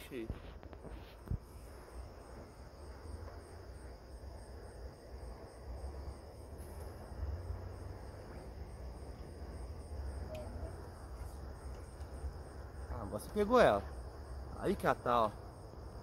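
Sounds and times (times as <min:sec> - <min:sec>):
night insects chirping: 0:00.0 - 0:16.0.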